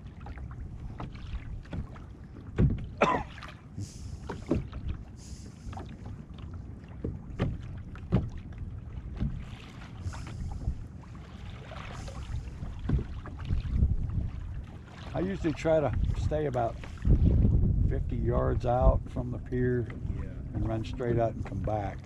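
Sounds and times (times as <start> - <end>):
waves slapping plastic hull: 0.0 - 22.0
steady low rumble: 7.6 - 22.0
hissing splashes: 9.4 - 10.8, 11.5 - 13.4.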